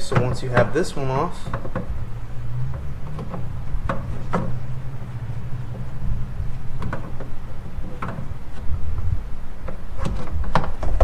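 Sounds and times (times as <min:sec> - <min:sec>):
steady low hum: 0:00.0 - 0:11.0
sharp plastic clicks and knocks: 0:01.4 - 0:02.0, 0:06.8 - 0:08.7.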